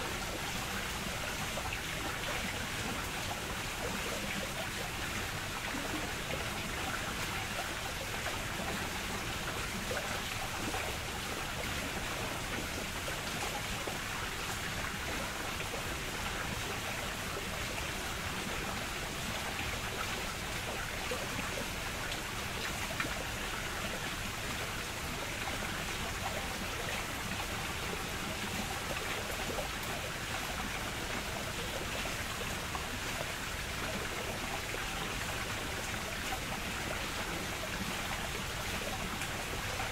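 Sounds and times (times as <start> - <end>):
running water rushing: 0.0 - 39.9.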